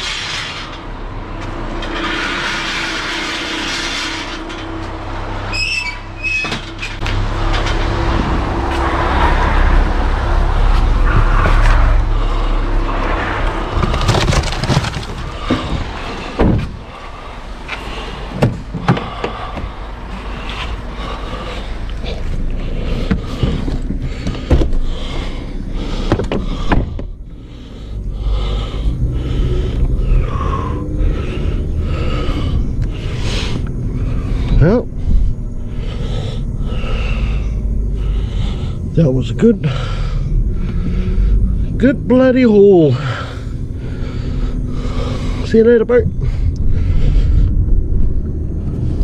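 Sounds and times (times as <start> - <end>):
vehicle engine running: 0.0 - 49.0
brief high squeal: 5.5 - 6.6.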